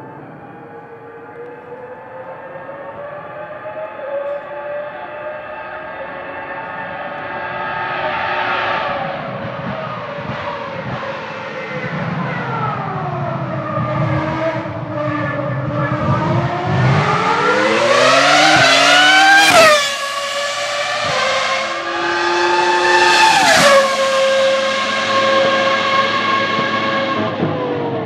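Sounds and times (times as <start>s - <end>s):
racing car engine revving: 0.5s - 28.0s.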